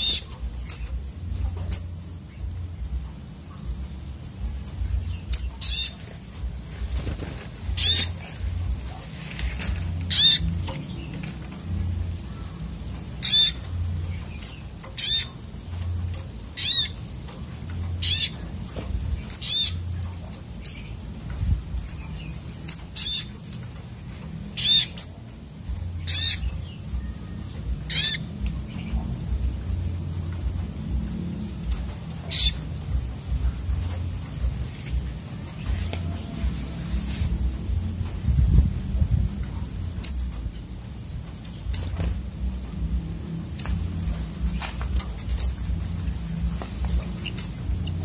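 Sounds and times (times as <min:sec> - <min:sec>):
birds high quavering calls: 0:00.0 - 0:01.0, 0:05.0 - 0:06.3, 0:07.0 - 0:17.1, 0:17.7 - 0:18.5, 0:19.2 - 0:21.0, 0:22.2 - 0:23.5, 0:24.5 - 0:25.2, 0:25.8 - 0:27.1, 0:27.7 - 0:29.0, 0:32.2 - 0:34.2, 0:45.3 - 0:45.8, 0:47.0 - 0:48.0.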